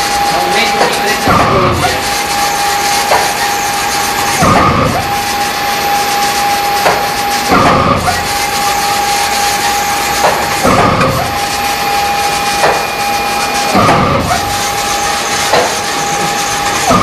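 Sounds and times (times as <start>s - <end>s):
machine hiss: 0.0s - 17.0s
printer carriage whine: 0.0s - 17.0s
carriage reversing clunk: 12.4s - 17.0s.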